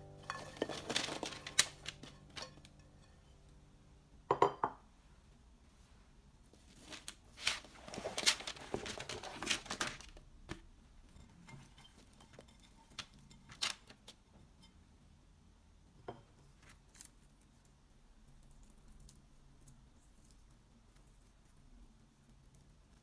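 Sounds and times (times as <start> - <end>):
paper rustling: 0.1 - 2.7, 6.6 - 10.6, 13.0 - 14.2.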